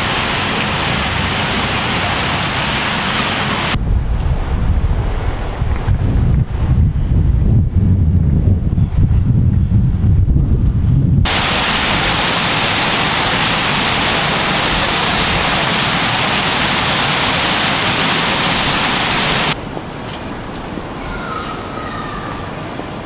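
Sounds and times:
water cascading down stone steps: 0.0 - 3.8, 11.3 - 19.6
wind rumble on microphone: 3.7 - 15.5.

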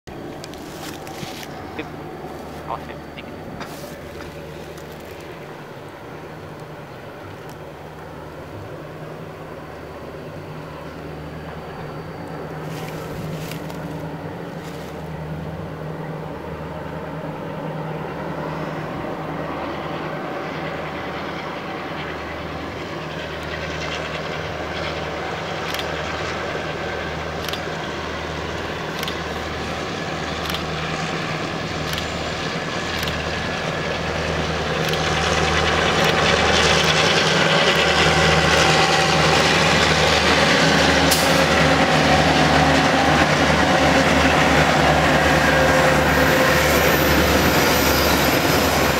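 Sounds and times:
locomotive engines droning: 0.1 - 48.9
sharp clicks: 25.6 - 26.0, 27.4 - 27.6, 28.9 - 29.3, 30.4 - 30.7, 31.8 - 32.1, 32.9 - 33.2, 34.8 - 35.1.

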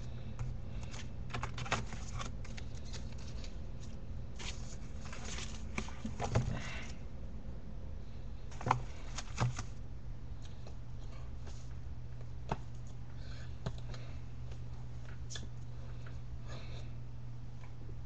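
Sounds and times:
steady low hum: 0.0 - 18.0
cards clicking and tapping: 0.8 - 3.5.

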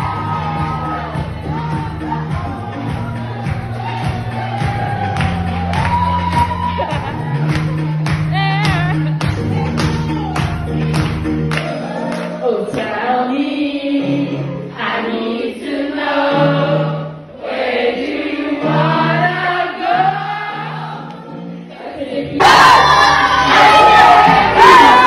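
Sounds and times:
pop backing track: 0.0 - 25.0
women singing into microphones: 12.4 - 17.1.

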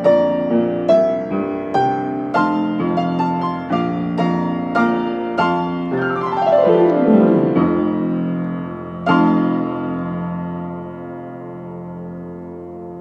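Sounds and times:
upright piano playing hymn: 0.0 - 13.0.

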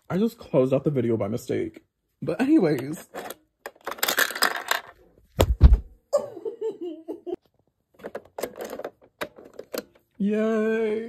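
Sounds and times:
dull thump: 5.4 - 5.9.

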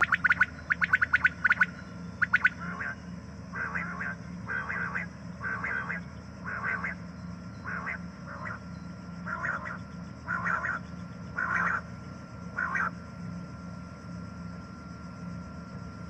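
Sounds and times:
quail calling: 0.0 - 7.0, 7.6 - 8.6, 9.2 - 11.9, 12.5 - 12.9
low hum: 0.0 - 16.0.

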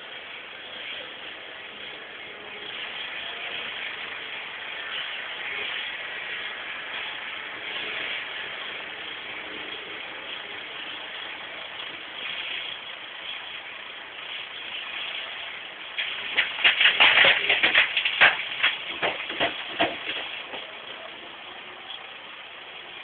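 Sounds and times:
excavator diesel engine running: 0.0 - 23.0
sharp clattering knocks: 16.0 - 20.8.

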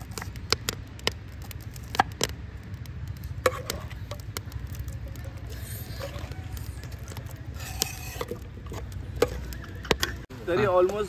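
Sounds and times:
metal spoon scraping a pot: 5.4 - 10.2.

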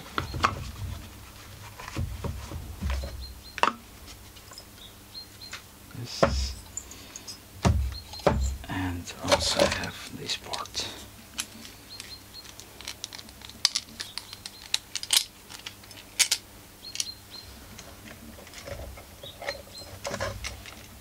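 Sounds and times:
faint steady hum: 0.0 - 21.0
metal parts clicking and tapping: 11.4 - 17.2.

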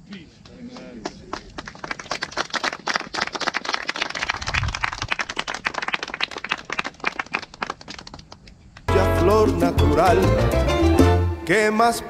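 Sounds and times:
crowd applauding: 0.7 - 8.4.

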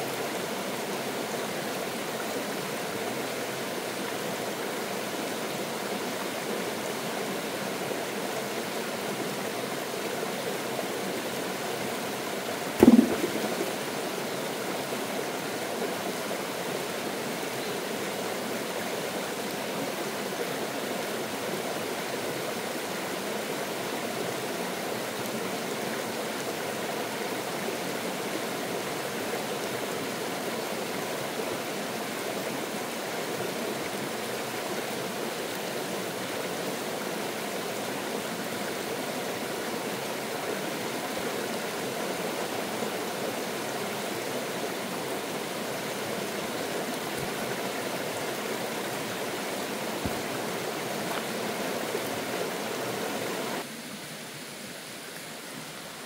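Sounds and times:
stream running over rocks: 0.0 - 56.0
brief thump: 12.8 - 13.8.

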